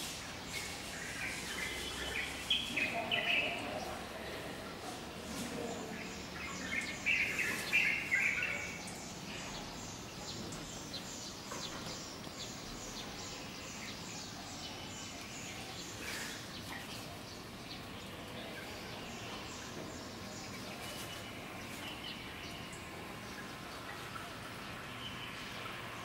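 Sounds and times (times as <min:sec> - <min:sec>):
birds chirping: 0:00.0 - 0:26.0
steady background noise: 0:00.0 - 0:26.0.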